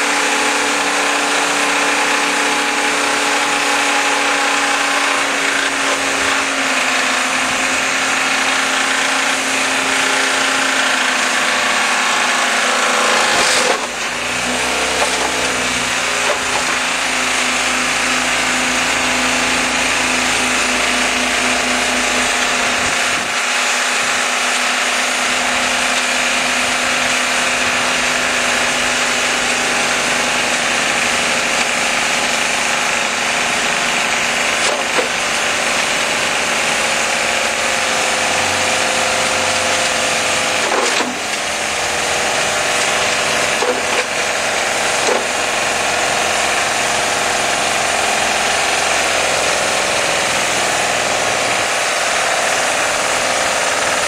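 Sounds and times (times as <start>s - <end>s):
six-cylinder engine running hard: 0.0s - 54.0s.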